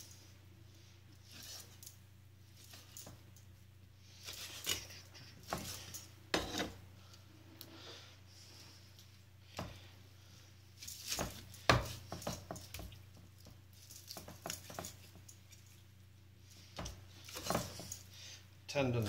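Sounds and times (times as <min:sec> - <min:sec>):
soft cutting and handling: 0:04.2 - 0:07.2.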